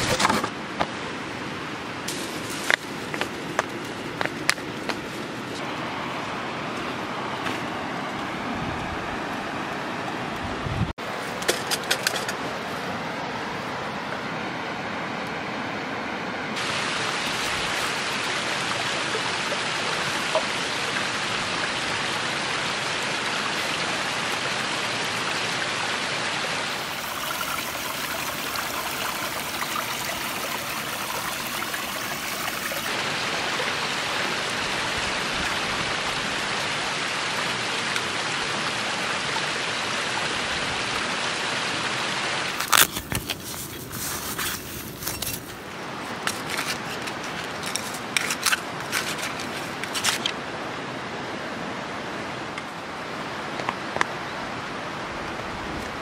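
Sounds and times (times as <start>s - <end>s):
stream flowing over rocks: 0.0s - 10.4s, 16.4s - 56.0s.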